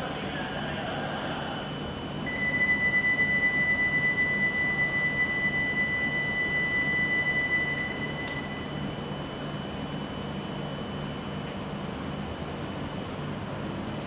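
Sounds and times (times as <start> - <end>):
low steady hum: 0.0 - 14.0
high ringing signal tone: 1.6 - 11.4.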